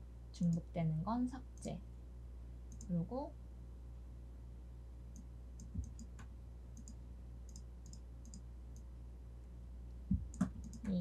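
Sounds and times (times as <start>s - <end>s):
steady low hum: 0.0s - 11.0s
computer mouse clicking: 2.7s - 2.9s, 5.1s - 8.9s, 10.1s - 11.0s.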